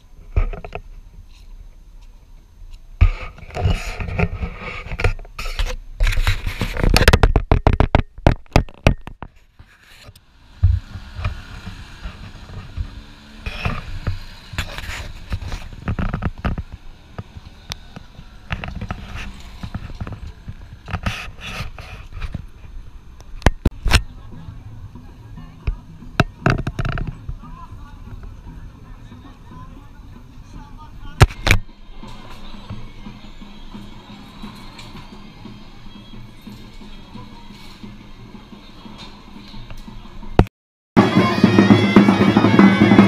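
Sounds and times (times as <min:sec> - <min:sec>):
microphone handling scraping: 0:00.2 - 0:01.6, 0:03.0 - 0:24.1, 0:26.2 - 0:27.5.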